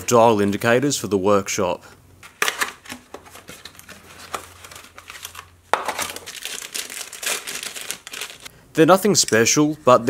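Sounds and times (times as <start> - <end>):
cardboard box opened: 2.3 - 8.3
plastic bag crinkling: 3.3 - 8.5.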